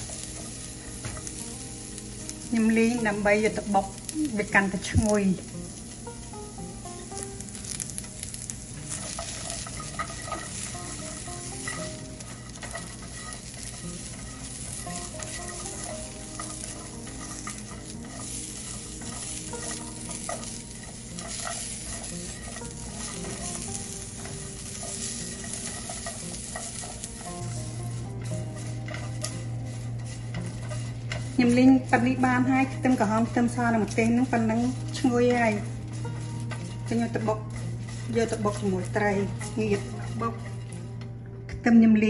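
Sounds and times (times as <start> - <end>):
spatula scraping a pan: 0.0 - 41.1
food sizzling in a pan: 0.0 - 41.8.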